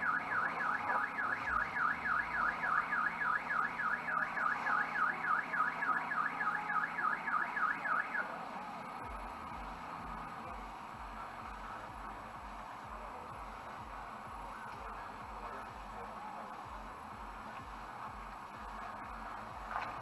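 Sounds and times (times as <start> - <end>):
car alarm siren warbling: 0.0 - 9.2.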